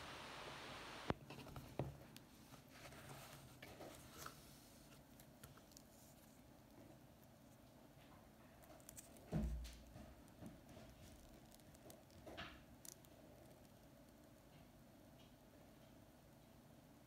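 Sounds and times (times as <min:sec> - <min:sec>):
steady hiss: 0:00.0 - 0:01.2
faint rustling and small clicks: 0:01.1 - 0:16.6.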